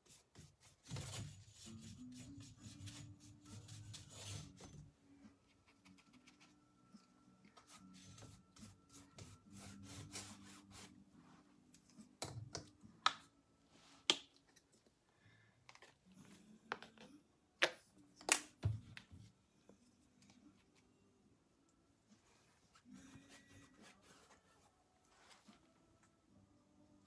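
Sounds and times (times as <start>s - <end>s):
paintbrush scratching on canvas: 0.0s - 4.6s, 7.6s - 11.0s, 22.7s - 24.7s.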